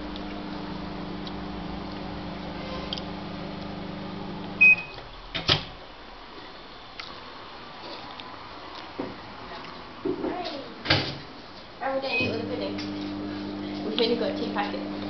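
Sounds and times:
microwave oven humming: 0:00.0 - 0:05.0, 0:12.0 - 0:15.0.

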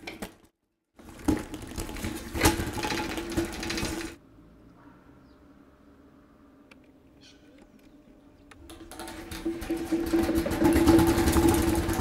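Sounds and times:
tracks rattling on concrete: 0:01.1 - 0:04.2, 0:08.7 - 0:12.0.

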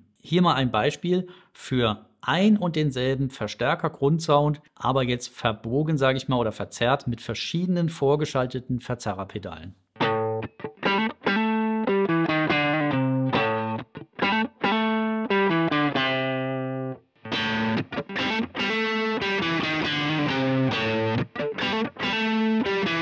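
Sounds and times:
overdriven electric guitar riff: 0:10.0 - 0:23.0.

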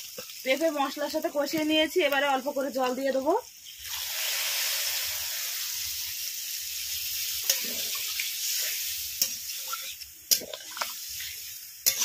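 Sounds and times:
water sizzling in hot oil: 0:00.0 - 0:12.0
metal spatula scraping a pan: 0:07.3 - 0:12.0.

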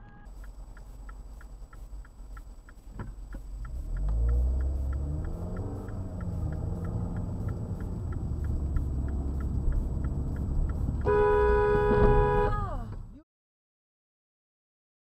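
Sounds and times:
two-tone car horn blaring: 0:00.0 - 0:00.3, 0:11.0 - 0:12.7
car cabin road and engine rumble: 0:00.0 - 0:13.2
faint regular ticking: 0:00.3 - 0:11.9.

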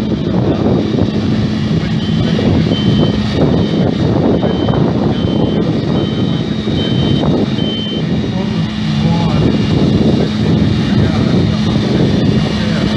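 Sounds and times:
forage harvester droning: 0:00.0 - 0:12.9
reversing alarm beeping: 0:01.6 - 0:09.9.

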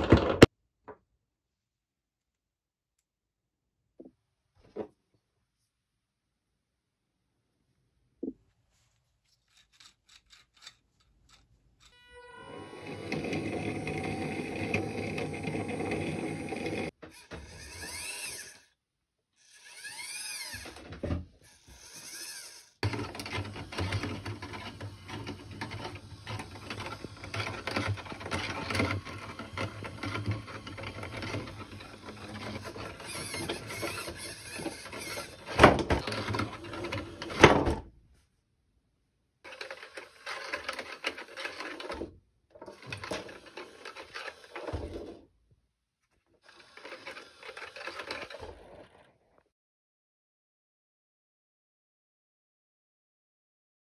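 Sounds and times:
electric motor and servo whirring: 0:11.8 - 0:18.8, 0:19.4 - 0:37.4, 0:42.7 - 0:45.2, 0:46.4 - 0:49.1.

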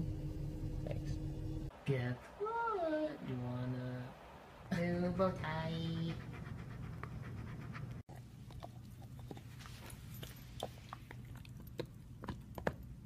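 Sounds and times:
dog panting: 0:05.8 - 0:12.8.

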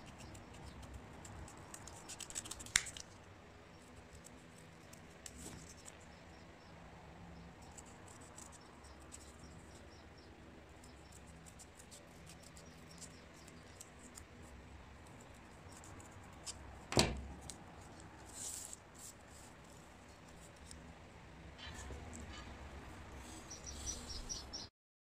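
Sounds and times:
paper rustling: 0:01.6 - 0:03.1.

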